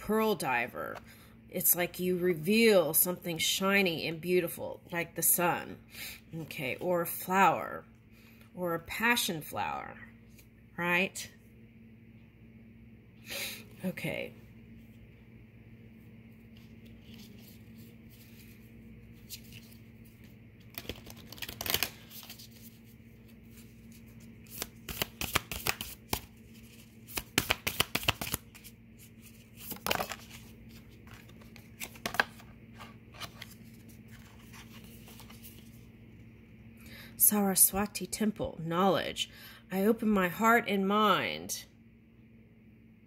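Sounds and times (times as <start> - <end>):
faint steady hum: 0.0 - 43.0
cards being shuffled: 16.5 - 35.9.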